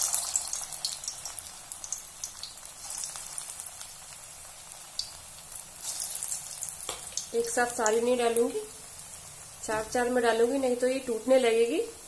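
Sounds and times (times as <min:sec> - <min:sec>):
food deep-frying in hot oil: 0:00.0 - 0:12.0.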